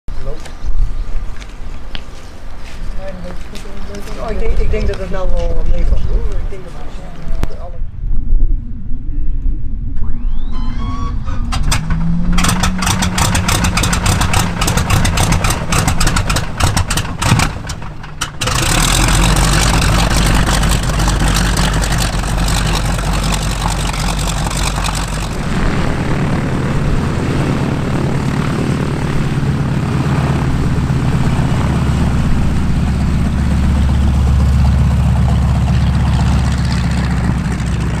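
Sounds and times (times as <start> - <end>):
starter whine: 10.2 - 37.9.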